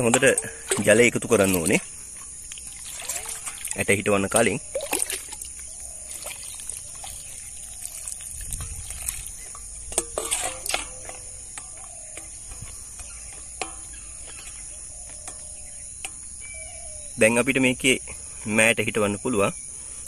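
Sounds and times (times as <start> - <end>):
water splashing onto soil: 0.0 - 12.4.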